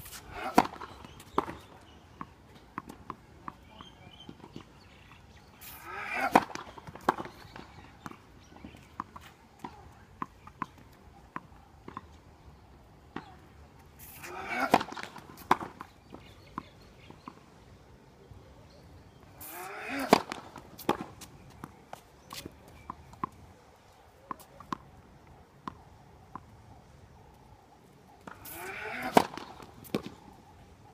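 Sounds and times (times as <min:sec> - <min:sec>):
tennis ball bouncing on hard court: 0:06.3 - 0:12.2, 0:20.0 - 0:21.7, 0:25.6 - 0:26.5, 0:28.2 - 0:30.2
racket striking ball: 0:19.5 - 0:21.2, 0:28.2 - 0:30.2.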